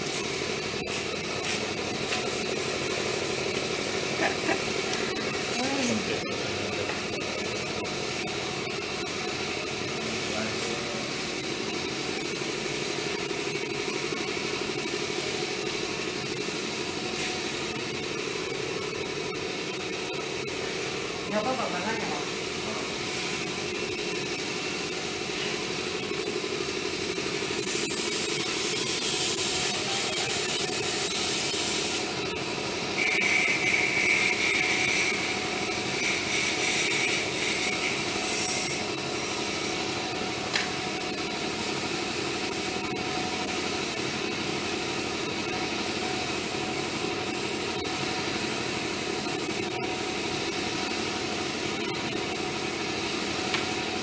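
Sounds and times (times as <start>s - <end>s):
airbrush hissing: 0.0s - 6.4s, 14.0s - 17.7s, 22.7s - 42.7s.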